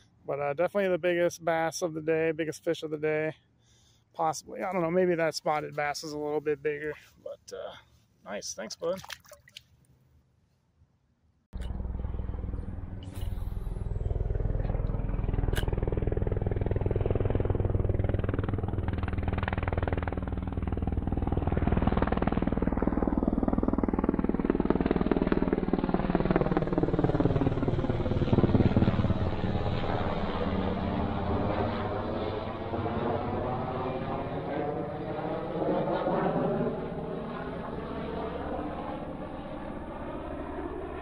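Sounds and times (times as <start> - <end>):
helicopter rotor drone: 11.6 - 41.0.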